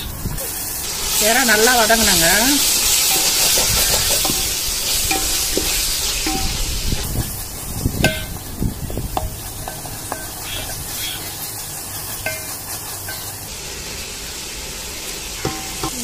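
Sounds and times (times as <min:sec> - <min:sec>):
prawns sizzling in a pot: 0:00.0 - 0:16.0
wooden spatula tapping a pot: 0:03.1 - 0:06.6, 0:08.0 - 0:08.5, 0:09.1 - 0:10.8, 0:12.2 - 0:13.3, 0:15.4 - 0:16.0.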